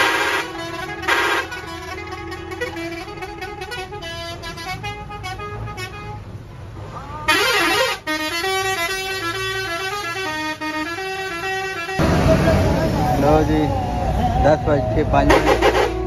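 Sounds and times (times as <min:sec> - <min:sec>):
vehicle horns sounding: 0:00.0 - 0:06.3, 0:07.3 - 0:12.6, 0:15.2 - 0:16.0
bus engines running: 0:00.0 - 0:16.0.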